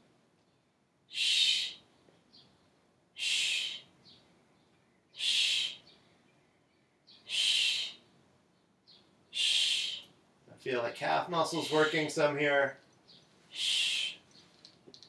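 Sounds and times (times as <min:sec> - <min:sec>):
person exhaling hissing: 0:01.1 - 0:01.8, 0:03.2 - 0:03.8, 0:05.2 - 0:05.8, 0:07.3 - 0:08.0, 0:09.4 - 0:10.0, 0:13.5 - 0:14.2.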